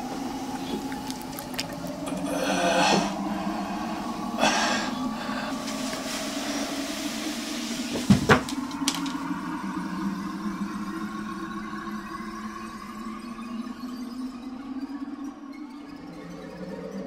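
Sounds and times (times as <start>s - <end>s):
breathy rush of noise: 0.0s - 11.9s
steady low hum: 0.0s - 17.0s
dull thuds on wooden floor: 8.0s - 8.6s.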